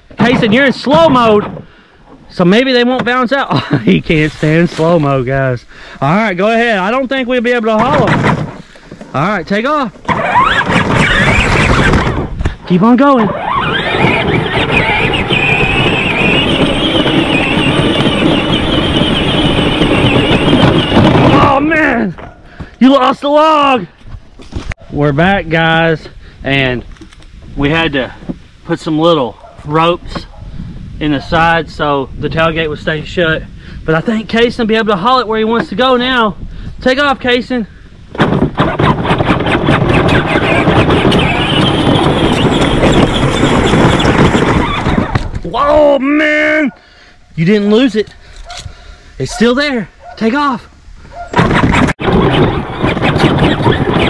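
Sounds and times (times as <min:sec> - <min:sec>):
logs knocking and rattling: 0:00.0 - 0:03.4, 0:07.7 - 0:12.6, 0:20.0 - 0:22.8, 0:38.1 - 0:45.7
wheels on rough dirt: 0:00.0 - 0:36.3, 0:38.1 - 0:46.7, 0:51.0 - 0:54.0.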